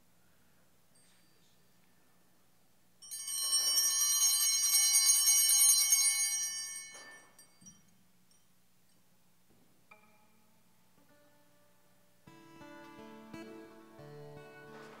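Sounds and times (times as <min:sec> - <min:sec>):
small bells jangling: 0:00.9 - 0:01.9, 0:03.0 - 0:09.2.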